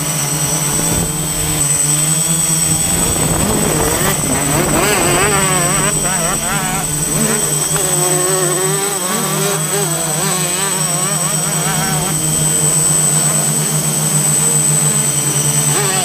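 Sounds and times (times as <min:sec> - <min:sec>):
high steady whine: 0:00.0 - 0:09.1
drone propellers humming: 0:00.0 - 0:09.2, 0:11.3 - 0:14.6
motocross bike engines revving: 0:00.2 - 0:08.8.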